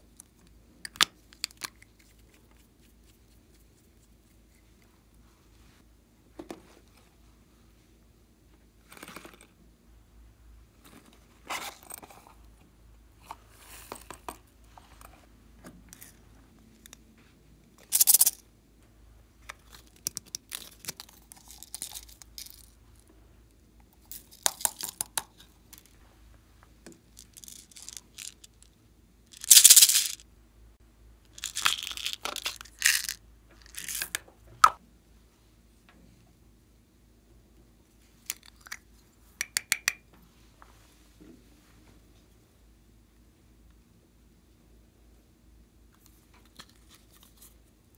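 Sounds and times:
beads pattering into bowl: 0:17.9 - 0:18.4, 0:27.1 - 0:28.7, 0:29.3 - 0:30.2, 0:31.4 - 0:34.2.

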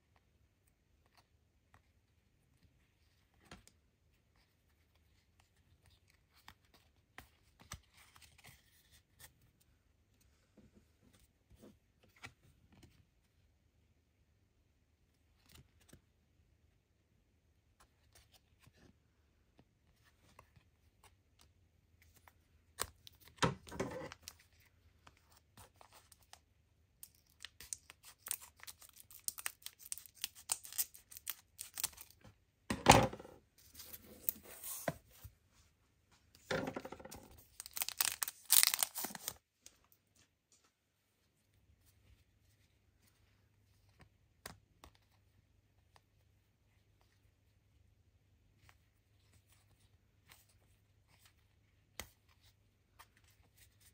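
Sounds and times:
wrapper crinkling and tearing: 0:27.0 - 0:32.2, 0:37.4 - 0:39.4.

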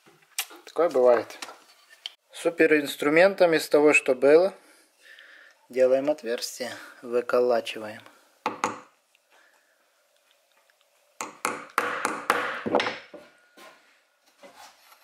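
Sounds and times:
hammer striking hand punch: 0:11.2 - 0:13.0.

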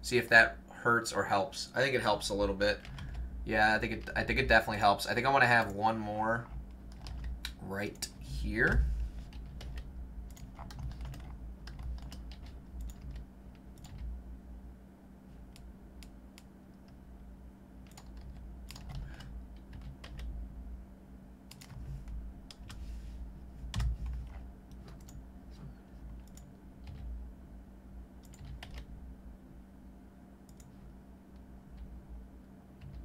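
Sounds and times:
steady low hum: 0:00.0 - 0:33.0
computer keyboard keys clicking: 0:02.8 - 0:03.2, 0:06.9 - 0:07.6, 0:09.3 - 0:13.2, 0:13.8 - 0:14.1, 0:17.8 - 0:20.3, 0:21.5 - 0:22.8, 0:28.2 - 0:28.9.

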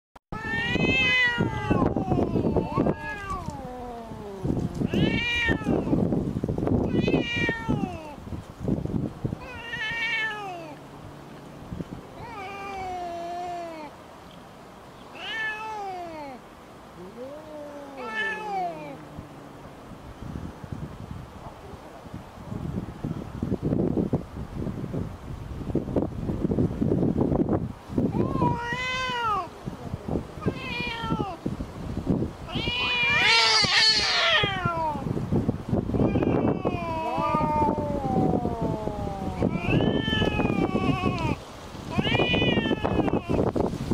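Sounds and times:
cat yowling: 0:00.4 - 0:06.0, 0:06.8 - 0:08.2, 0:09.4 - 0:10.8, 0:12.2 - 0:13.9, 0:15.1 - 0:16.4, 0:17.0 - 0:19.3, 0:28.1 - 0:29.6, 0:30.4 - 0:31.4, 0:32.5 - 0:35.1, 0:35.9 - 0:43.4.

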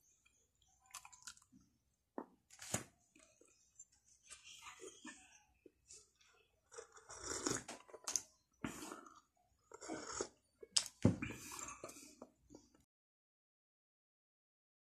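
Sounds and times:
person sipping and slurping: 0:06.7 - 0:12.2
person chewing: 0:06.7 - 0:12.3.

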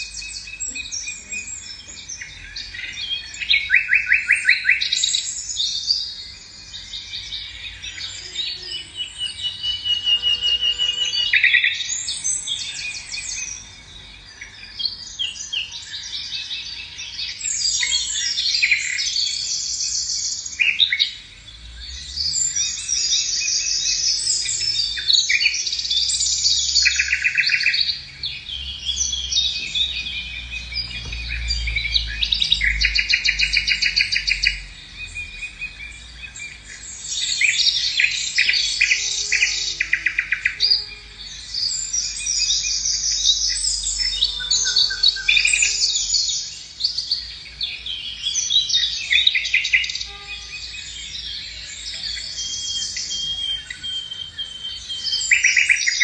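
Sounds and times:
magpies chattering: 0:07.7 - 0:13.7, 0:22.4 - 0:50.0.

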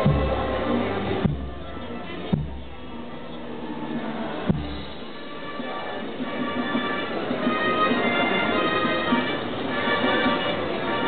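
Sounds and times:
low drum beat: 0:00.0 - 0:07.4.

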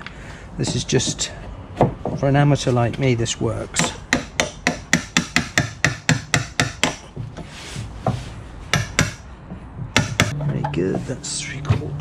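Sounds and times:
hammer striking wood chisel: 0:03.8 - 0:07.4, 0:08.1 - 0:10.8.

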